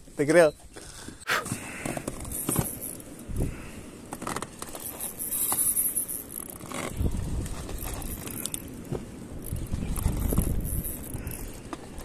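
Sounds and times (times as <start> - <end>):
fishing reel whirring: 4.7 - 6.9, 7.8 - 8.8, 9.4 - 11.6.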